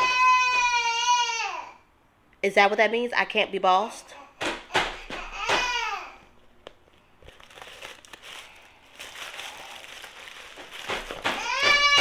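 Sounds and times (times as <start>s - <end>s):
woman speaking: 2.4s - 4.2s
bag crinkling and rustling: 6.8s - 12.0s.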